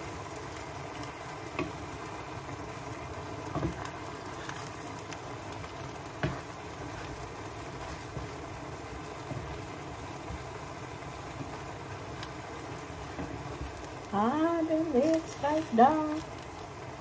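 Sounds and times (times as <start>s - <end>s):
noodles sizzling in a pan: 0.0s - 17.0s.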